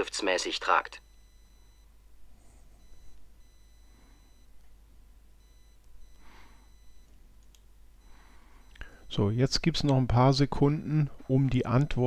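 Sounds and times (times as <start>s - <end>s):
low electrical hum: 0.0s - 12.0s
soft breathy noises: 2.2s - 4.6s, 6.0s - 7.1s, 8.0s - 9.2s.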